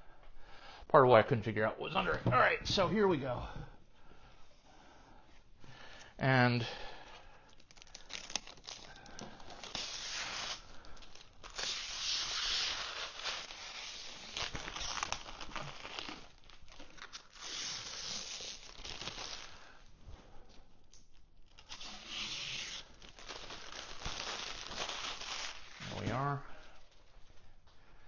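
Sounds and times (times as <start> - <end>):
plastic bag crinkling: 7.5 - 11.6, 12.7 - 17.5, 21.5 - 26.0.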